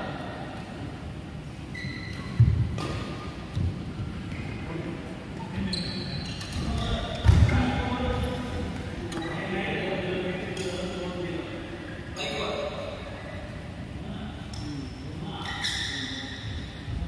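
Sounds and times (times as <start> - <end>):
shoe squeaks: 1.7 - 2.9, 5.4 - 7.7, 14.7 - 16.8.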